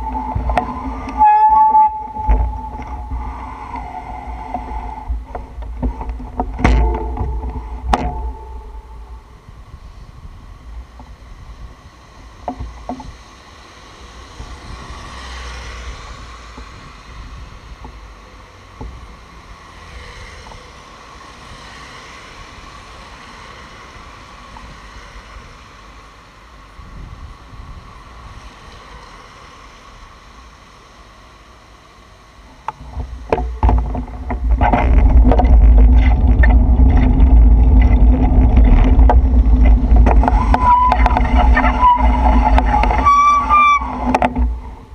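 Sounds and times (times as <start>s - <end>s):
tyres hissing on a wet road: 0.0s - 6.1s, 8.9s - 33.2s
close rumble with rattles: 0.0s - 30.9s, 32.4s - 44.9s.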